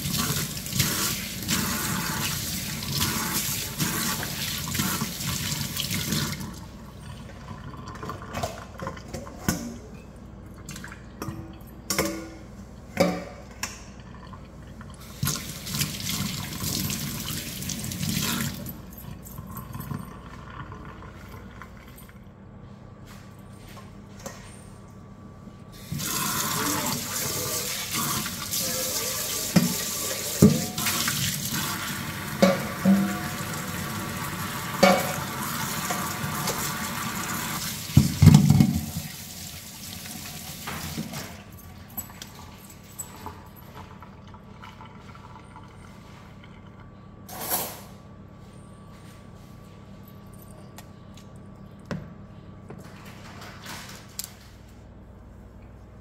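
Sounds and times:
metal colander and bowl knocking: 32.4s - 33.4s.

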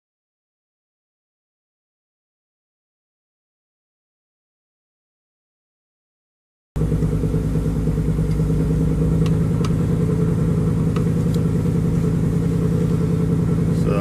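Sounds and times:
engine idling: 6.8s - 14.0s.

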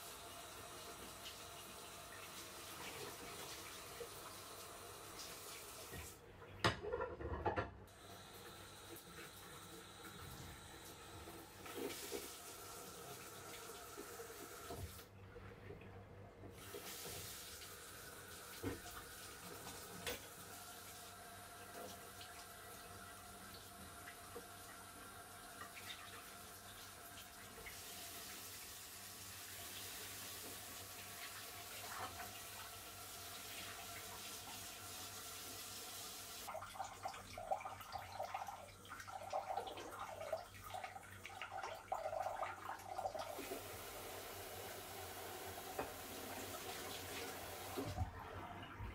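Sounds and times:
faucet running water: 0.0s - 6.2s, 7.9s - 15.1s, 16.4s - 48.9s.

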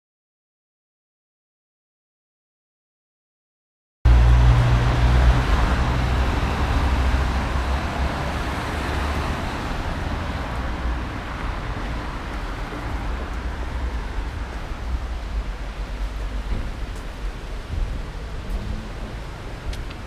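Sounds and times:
low vehicle rumble: 4.1s - 20.0s.

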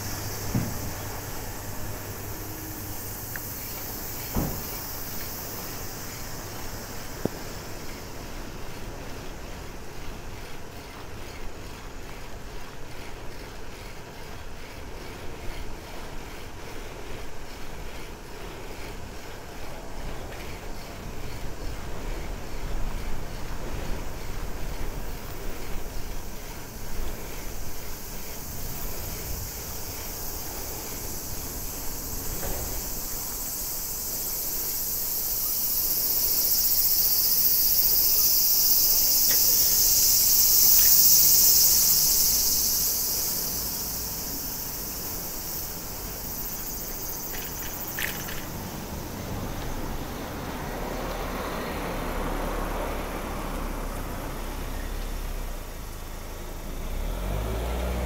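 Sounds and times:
cicadas buzzing: 0.0s - 58.0s.

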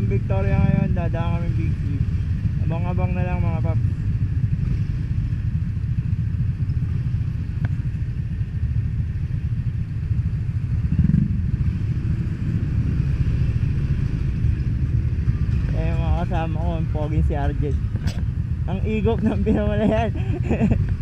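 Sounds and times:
scooter engines idling: 14.4s - 21.0s.

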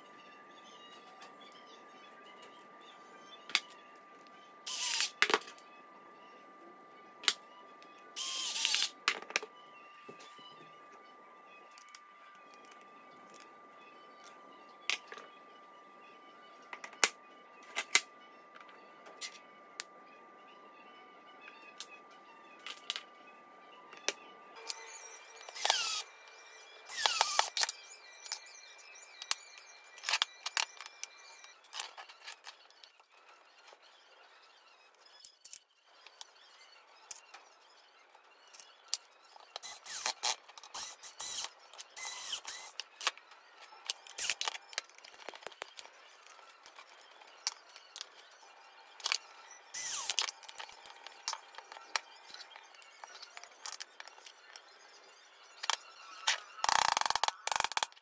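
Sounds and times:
electric screwdriver driving screws: 4.7s - 5.1s, 8.2s - 8.9s, 25.5s - 26.0s, 26.9s - 27.7s, 39.6s - 42.8s, 49.8s - 50.3s
screws and metal parts clicking: 39.6s - 43.2s, 49.8s - 52.0s.

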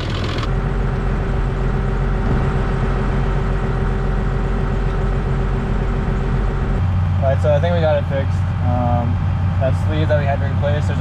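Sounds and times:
tractor engine idling: 0.0s - 11.0s.

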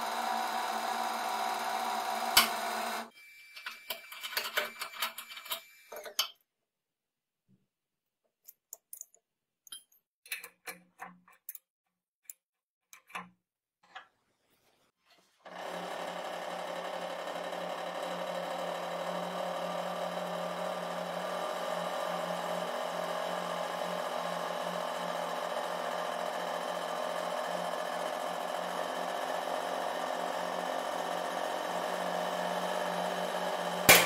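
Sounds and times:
hydraulic pump humming: 0.0s - 3.2s, 27.8s - 34.0s.

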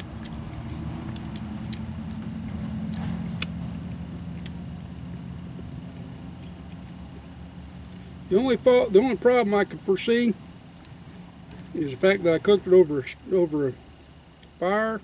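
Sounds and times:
person eating with fingers: 0.0s - 8.2s
low hum: 0.0s - 14.7s.

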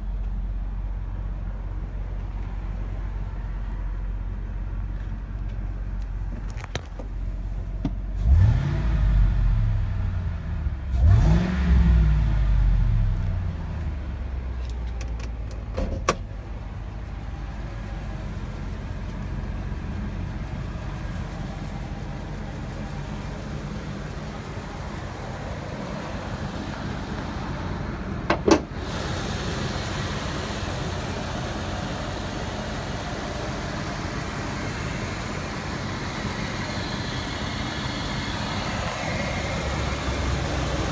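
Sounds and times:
engine revving and idling: 8.1s - 15.6s, 16.3s - 40.9s.

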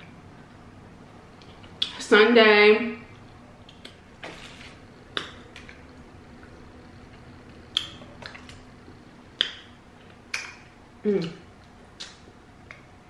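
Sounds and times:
person chewing with wet smacks: 5.1s - 12.9s.

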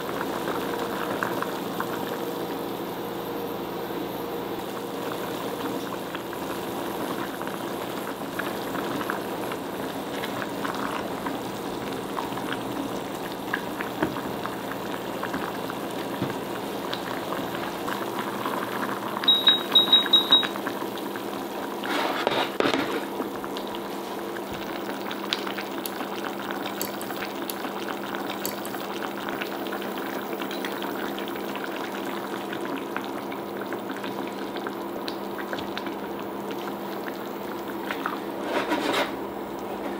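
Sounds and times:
broth simmering and bubbling: 0.0s - 19.7s, 20.4s - 22.3s, 23.0s - 39.9s
high beeps from touch controls: 19.3s - 20.6s.

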